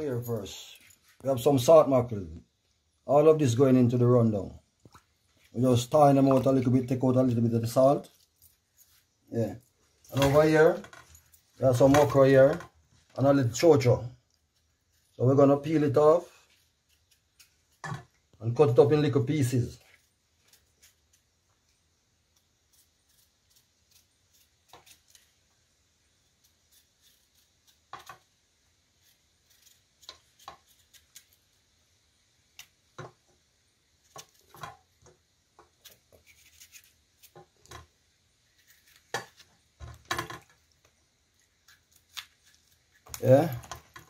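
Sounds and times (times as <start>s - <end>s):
knife scraping while peeling: 16.2s - 17.8s, 22.3s - 25.4s, 26.2s - 28.2s, 28.9s - 31.5s, 35.7s - 37.6s, 38.4s - 39.5s, 41.4s - 43.5s.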